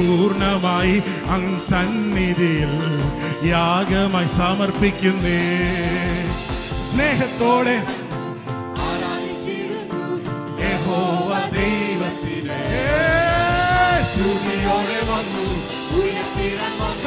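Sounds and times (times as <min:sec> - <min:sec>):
person singing: 0:00.0 - 0:08.1, 0:10.6 - 0:17.0
band drums playing a beat: 0:00.0 - 0:09.7, 0:10.4 - 0:17.0.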